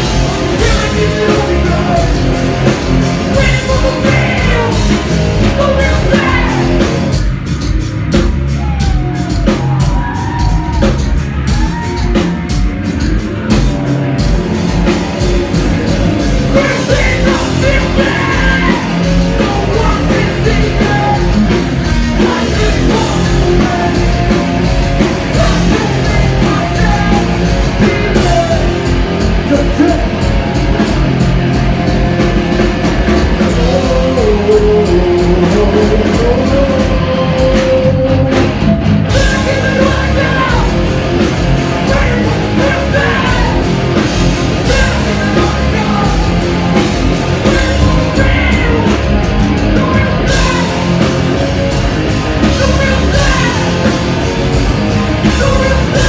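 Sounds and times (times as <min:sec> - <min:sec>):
punk band playing live: 0:00.0 - 0:56.0
shouted vocals: 0:03.4 - 0:07.0, 0:08.5 - 0:12.4, 0:41.7 - 0:43.9, 0:47.4 - 0:51.1.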